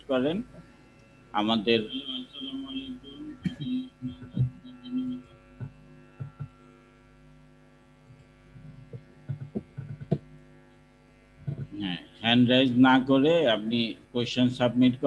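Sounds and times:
electrical mains hum: 0:00.0 - 0:15.0
faint clicks and knocks: 0:08.1 - 0:10.3.

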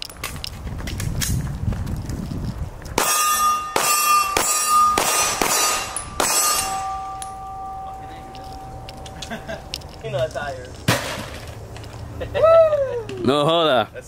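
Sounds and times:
steel targets ringing: 0:03.0 - 0:09.8
pistol shots: 0:03.8 - 0:07.0.

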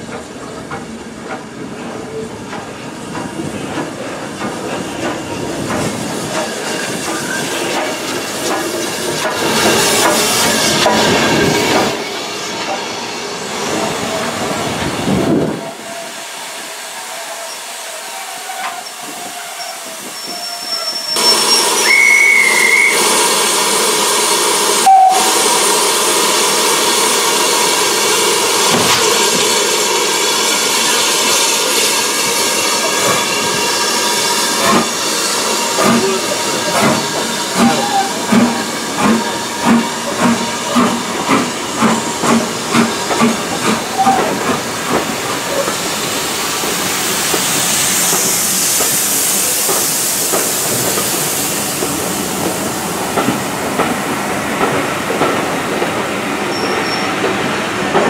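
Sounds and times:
train coaches rolling past: 0:00.0 - 0:58.0
steam locomotive exhaust chuffs: 0:00.1 - 0:58.0
loud steam hiss: 0:00.2 - 0:58.0
steam whistle: 0:17.4 - 0:27.2.

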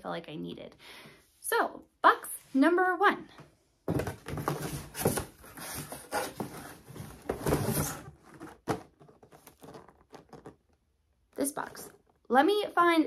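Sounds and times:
cardboard box scraping and rustling: 0:04.1 - 0:09.8.

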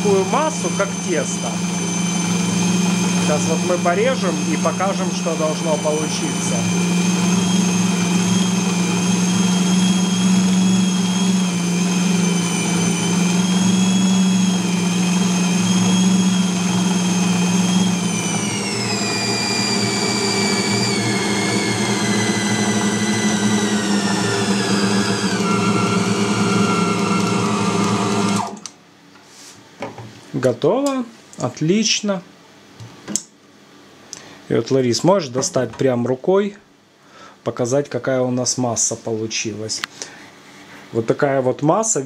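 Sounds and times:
bowl cutter motor humming and whining: 0:00.0 - 0:28.7.

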